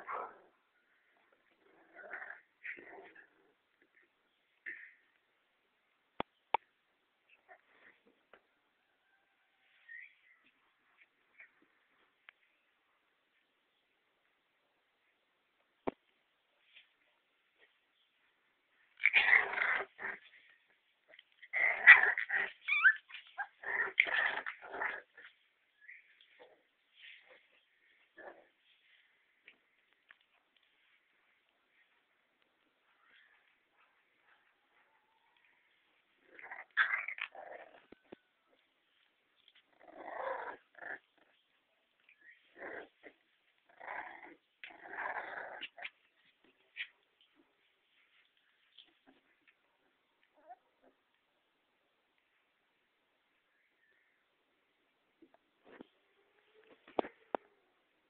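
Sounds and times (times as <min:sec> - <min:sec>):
puppies growling and snarling: 0:00.0 - 0:00.6, 0:01.2 - 0:05.0, 0:18.8 - 0:31.1, 0:35.5 - 0:47.4
puppy squealing: 0:21.5 - 0:26.6, 0:36.3 - 0:38.0.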